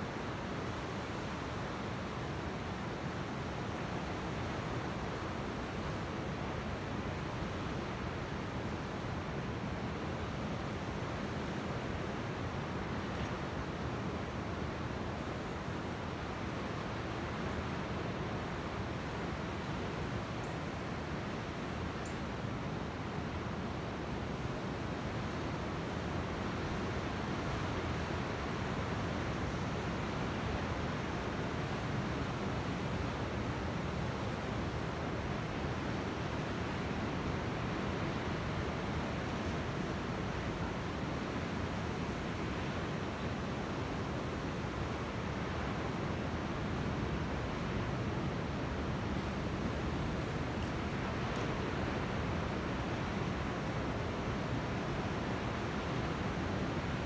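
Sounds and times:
wind: 0.0s - 57.0s
ocean surf: 22.7s - 57.0s.

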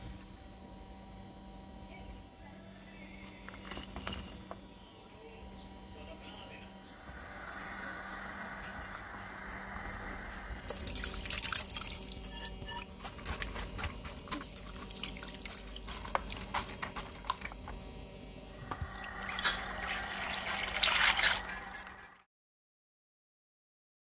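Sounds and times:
chutney simmering and bubbling: 7.0s - 17.8s
water dripping: 10.5s - 12.3s, 14.1s - 17.6s, 18.7s - 22.2s.

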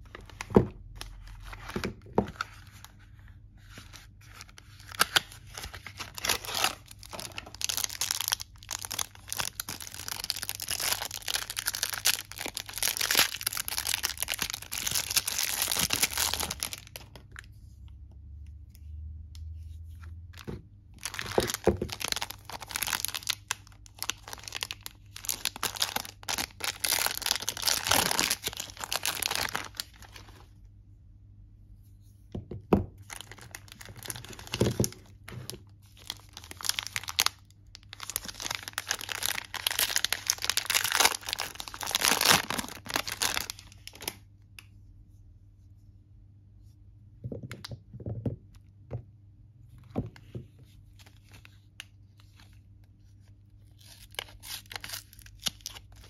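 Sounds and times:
plastic wrapper crinkling and tearing: 0.0s - 3.0s, 3.6s - 17.5s, 20.4s - 30.5s, 33.0s - 44.3s, 50.9s - 56.0s.

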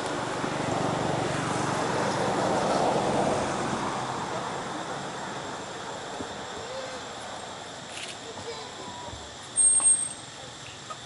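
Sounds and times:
vehicle driving past: 0.0s - 6.0s.

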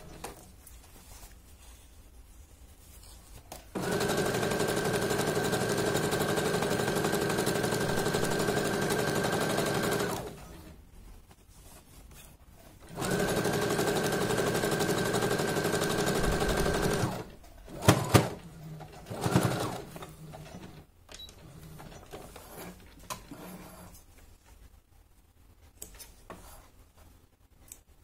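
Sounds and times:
sewing machine stitching: 3.7s - 10.7s, 12.8s - 24.0s.

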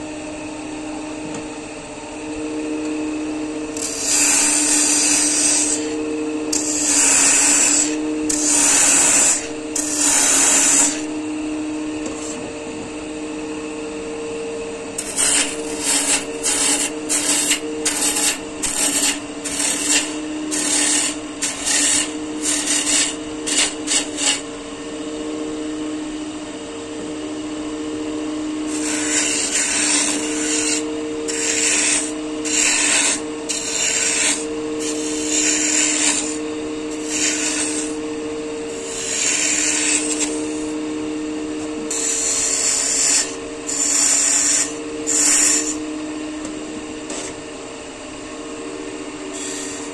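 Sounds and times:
wood lathe motor hum: 0.0s - 26.3s, 27.0s - 47.5s, 48.5s - 49.9s
turning tool hissing on wood: 37.0s - 38.0s.

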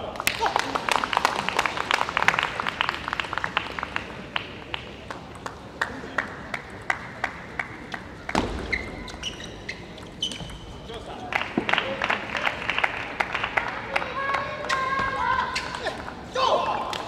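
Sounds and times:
crowd applause: 0.0s - 8.3s, 11.2s - 14.9s
shoes squeaking on court: 8.1s - 11.3s, 14.6s - 16.0s.

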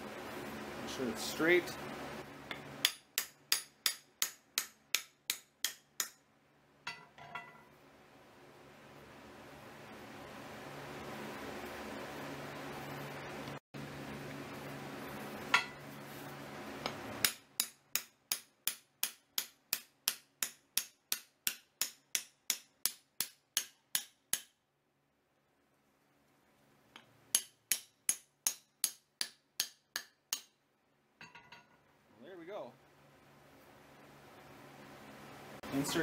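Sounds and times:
hammer rapping on anvil: 2.8s - 6.2s, 27.3s - 30.5s.

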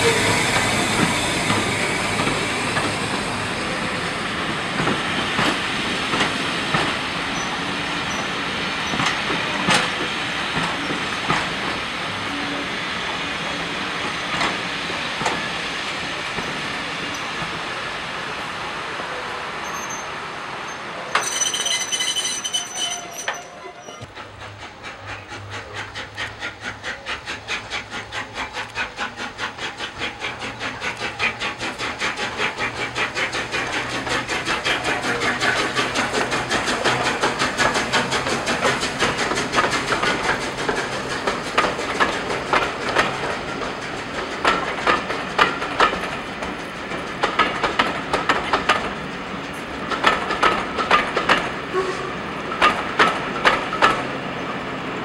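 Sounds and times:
train wheels clicking over rail joints: 0.0s - 17.9s, 19.6s - 55.0s
steam locomotive exhaust beats: 0.0s - 20.6s, 21.2s - 55.0s.

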